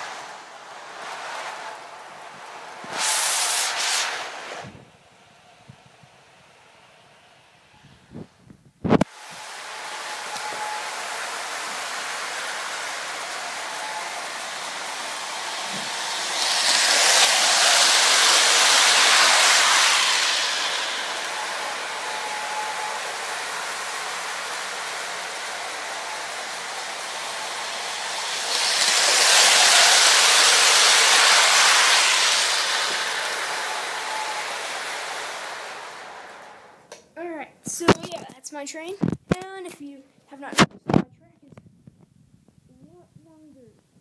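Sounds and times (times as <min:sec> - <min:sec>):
model train rumbling: 0:00.0 - 0:08.4, 0:09.0 - 0:36.9.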